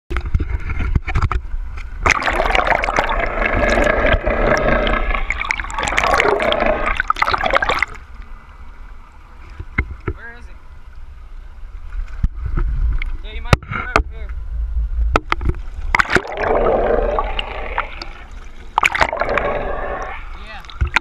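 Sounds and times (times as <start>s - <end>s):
soft wash of water: 1.5s - 13.4s, 15.4s - 21.0s
underwater water rushing: 2.0s - 8.5s, 15.2s - 21.0s
water splashing: 2.0s - 8.5s, 15.4s - 21.0s.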